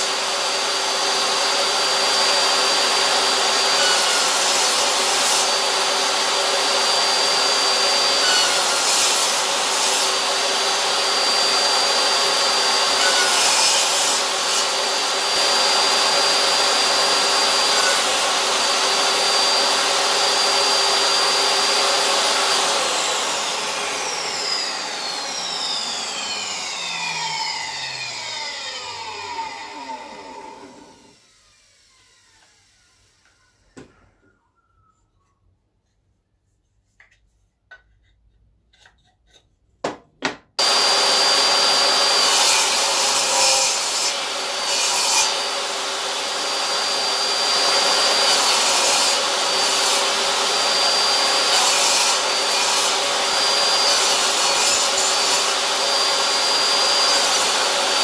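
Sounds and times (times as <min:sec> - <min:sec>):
saw blade winding down: 0:00.0 - 0:33.7
table saw cutting wood: 0:00.0 - 0:33.9, 0:40.6 - 0:58.0.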